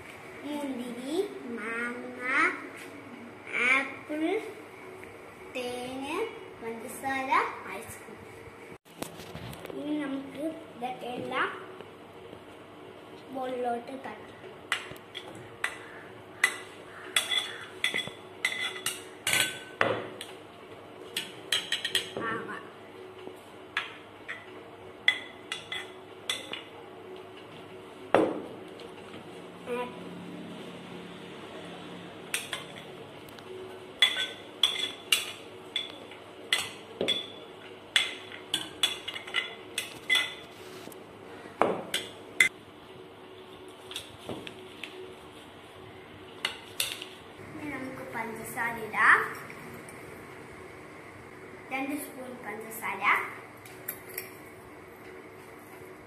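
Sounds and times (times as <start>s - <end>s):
spoon clinking against plates: 16.4s - 19.8s, 34.0s - 40.4s.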